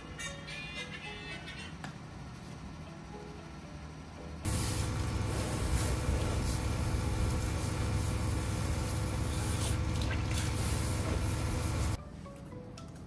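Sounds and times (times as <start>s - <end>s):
vehicle engine rumbling: 4.5s - 12.0s.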